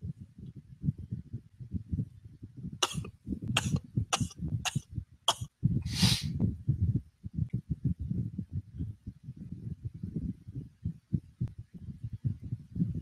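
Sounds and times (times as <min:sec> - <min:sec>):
short hissy strokes: 0:05.9 - 0:06.3.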